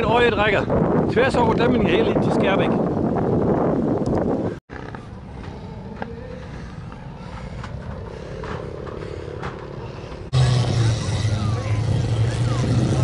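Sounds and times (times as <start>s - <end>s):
distant traffic hum: 4.7s - 13.0s.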